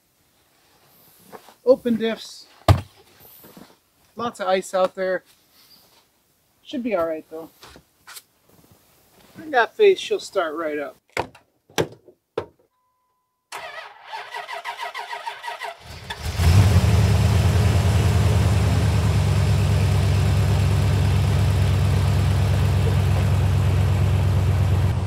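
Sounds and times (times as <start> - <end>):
truck engine idling: 16.5 - 25.0.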